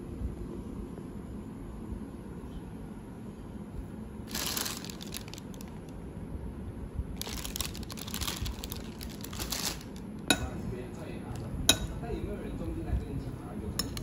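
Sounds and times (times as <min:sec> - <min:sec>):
plastic bag crinkling: 0:04.3 - 0:05.9, 0:07.2 - 0:10.1.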